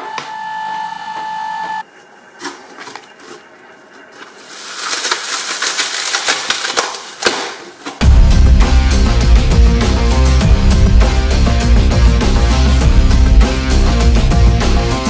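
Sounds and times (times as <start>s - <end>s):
watermelon crackling and popping: 2.4s - 8.0s
steady high whine: 8.0s - 14.9s.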